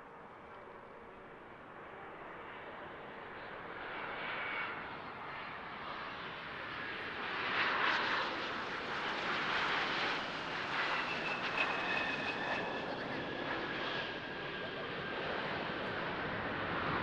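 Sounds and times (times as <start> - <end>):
jet engines hissing and whining: 4.4 - 17.0.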